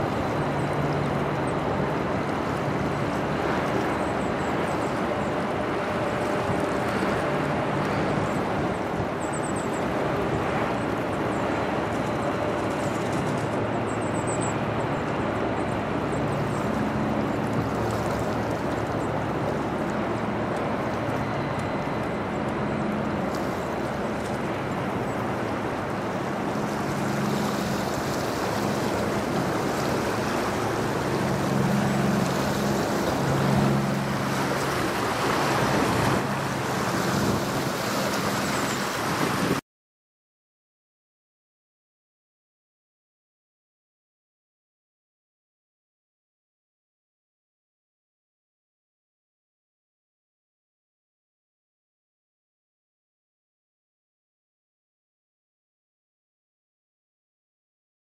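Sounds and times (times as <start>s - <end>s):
ship engine drone: 0.0s - 39.6s
wind: 0.0s - 39.6s.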